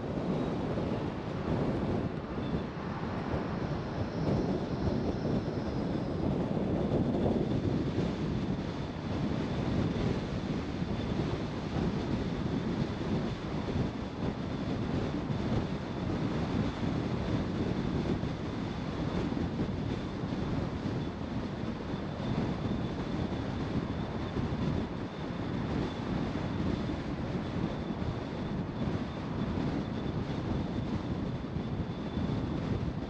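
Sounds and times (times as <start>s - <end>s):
faint high whine: 0.0s - 15.9s
car road and wind noise: 0.0s - 33.0s.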